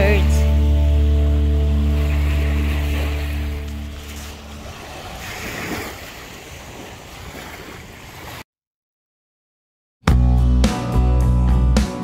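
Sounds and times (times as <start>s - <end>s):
small waves washing on shore: 0.0s - 8.4s.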